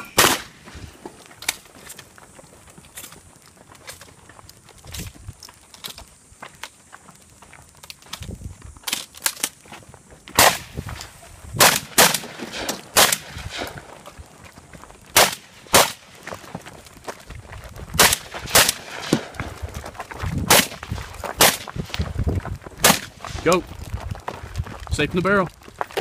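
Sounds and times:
loud gunshots with ringing echo: 0.0s - 0.6s, 10.4s - 10.8s, 11.6s - 13.7s, 15.2s - 16.0s.

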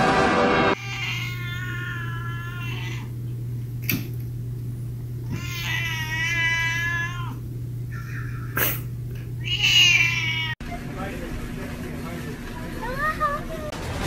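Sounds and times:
loud sound cut off: 0.0s - 0.8s, 13.7s - 14.0s
steady low hum: 0.6s - 14.0s
cat yowling: 0.7s - 3.2s, 5.3s - 8.8s, 9.4s - 10.6s.

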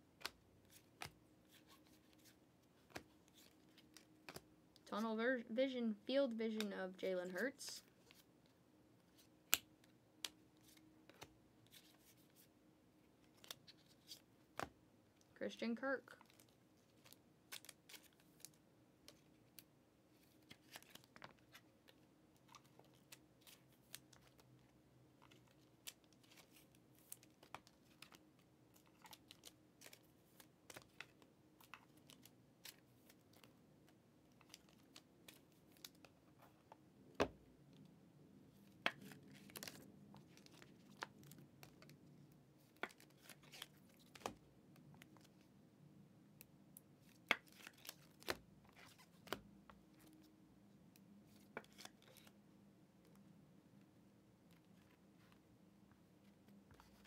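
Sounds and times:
trading cards being handled: 0.2s - 8.4s, 9.0s - 12.5s, 13.2s - 14.7s, 16.1s - 37.4s, 38.5s - 45.4s, 51.2s - 52.4s, 56.3s - 57.0s.

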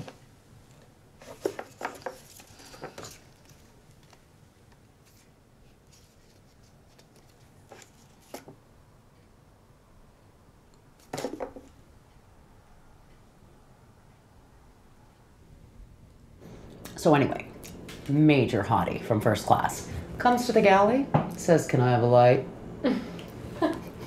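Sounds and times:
photographs rustling and clicking: 0.0s - 8.6s.

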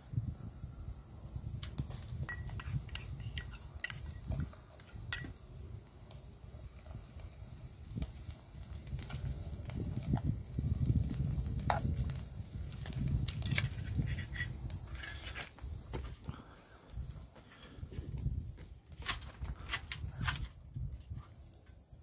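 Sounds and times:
metal spoon scraping a pan: 2.3s - 5.3s, 13.4s - 15.4s.

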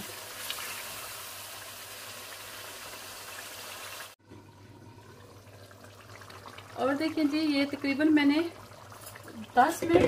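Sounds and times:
sauce sizzling in a frying pan: 0.0s - 4.2s.

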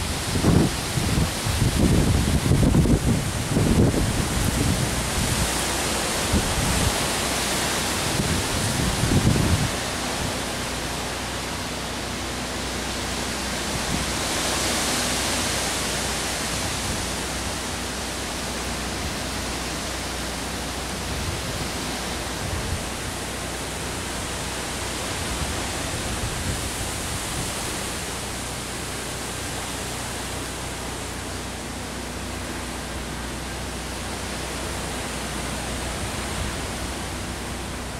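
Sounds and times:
wind buffeting microphone: 0.0s - 10.6s
wind rushing through trees: 0.0s - 37.9s.

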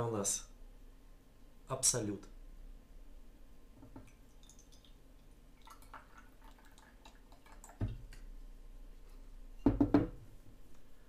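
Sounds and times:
liquid trickling into shot glass: 4.0s - 8.3s
glass knocking on wooden table: 9.6s - 10.2s.

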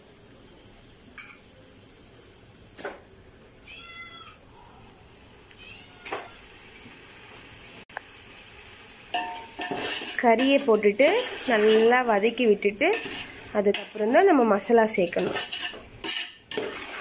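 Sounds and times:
faint sizzle in a pot: 0.0s - 17.0s
cat meowing: 3.6s - 4.4s, 5.5s - 6.5s.

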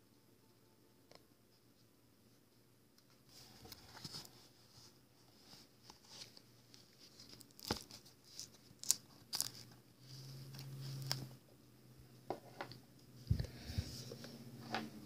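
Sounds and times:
rustling and crinkling: 3.1s - 11.4s.

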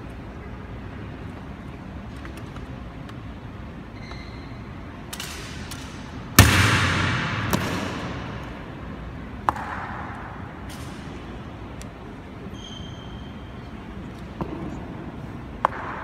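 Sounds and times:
loud echoing boot stamp: 6.4s - 8.8s.

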